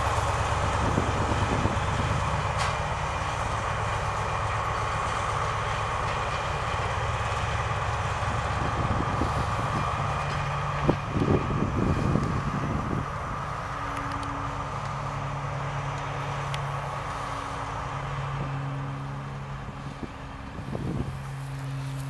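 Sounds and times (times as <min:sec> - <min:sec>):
locomotive engine drone: 0:00.0 - 0:22.0
wagons rumbling on track: 0:00.0 - 0:22.0.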